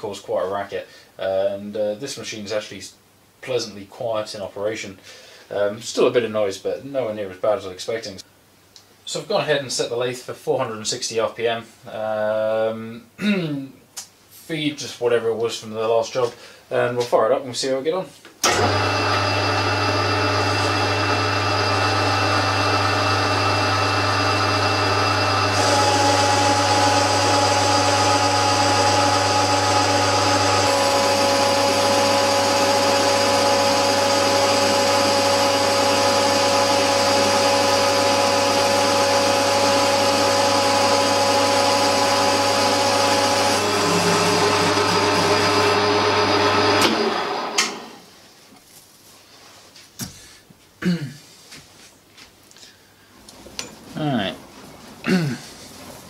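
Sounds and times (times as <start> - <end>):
lathe motor hum: 18.4 - 48.0
lathe whining tones: 18.4 - 48.0.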